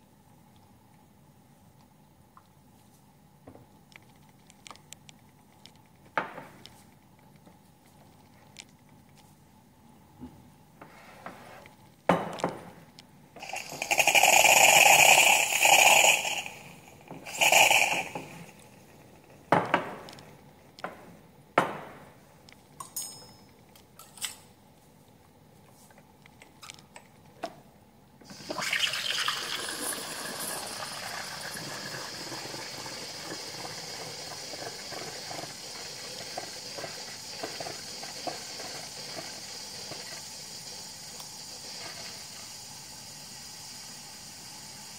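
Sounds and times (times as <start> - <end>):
steam wand hissing: 13.4 - 18.6, 28.3 - 44.9
water rushing in espresso machine: 13.4 - 19.4, 28.3 - 44.9.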